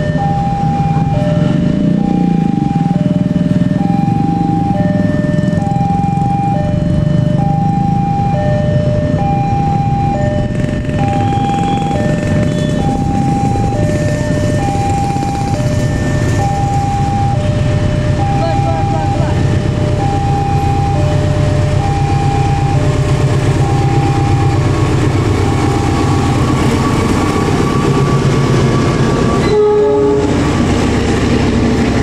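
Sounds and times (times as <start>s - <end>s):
two-tone electronic warning chime: 0.0s - 24.7s, 25.4s - 30.2s
steady low rumble: 0.0s - 29.5s, 30.1s - 32.0s.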